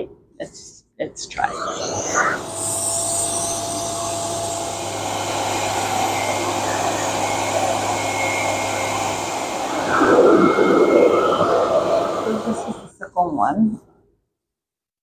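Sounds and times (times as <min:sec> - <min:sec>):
hair dryer suction rushing air: 0:01.6 - 0:12.9.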